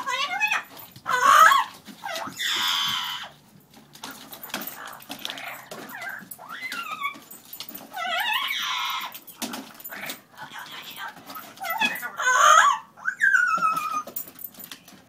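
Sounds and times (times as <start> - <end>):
dog growling and yipping: 0.0 - 3.4, 4.0 - 14.3
parrot screeching: 0.0 - 3.4, 4.8 - 7.2, 7.9 - 9.2, 9.9 - 14.2.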